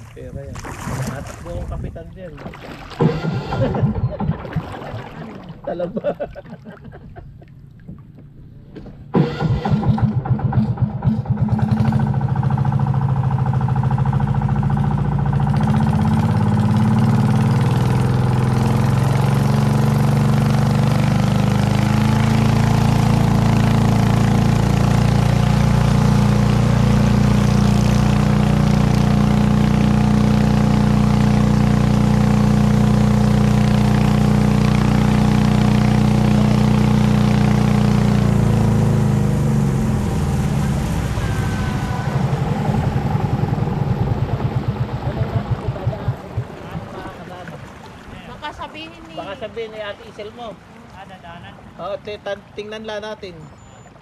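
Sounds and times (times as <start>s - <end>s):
boat engine running: 0.0s - 54.0s.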